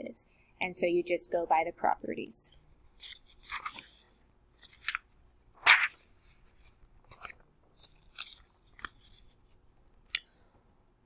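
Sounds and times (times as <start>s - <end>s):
paper pages rustling: 3.0s - 9.6s.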